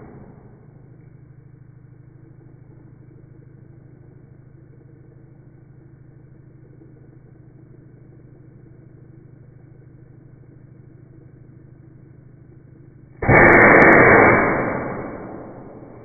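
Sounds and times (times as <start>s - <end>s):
small pump humming: 0.0s - 16.0s
loud blast of air: 13.2s - 16.0s.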